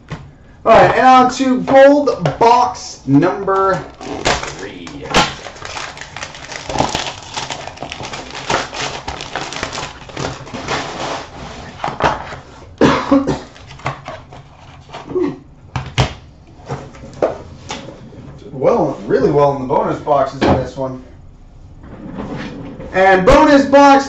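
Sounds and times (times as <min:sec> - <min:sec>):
cardboard packaging rustling: 0:03.3 - 0:12.6.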